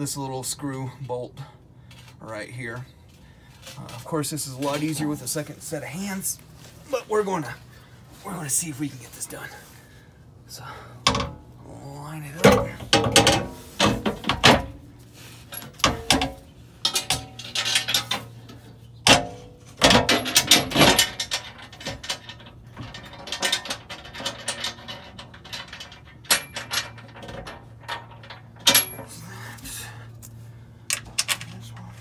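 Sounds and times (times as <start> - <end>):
metal plate clanking and scraping: 12.4 - 29.2.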